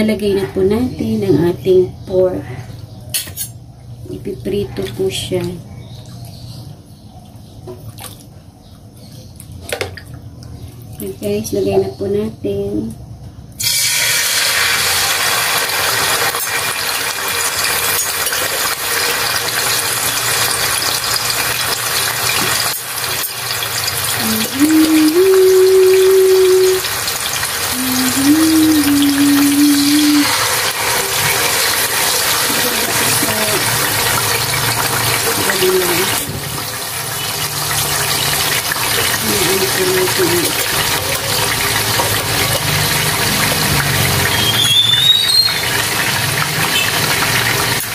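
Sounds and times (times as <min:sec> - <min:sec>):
meat sizzling in hot oil: 0:13.6 - 0:47.9.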